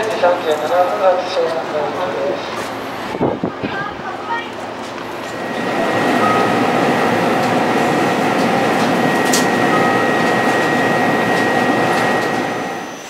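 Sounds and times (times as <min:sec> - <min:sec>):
subway equipment whirring: 0:00.0 - 0:13.0
thin high whine: 0:05.0 - 0:13.0.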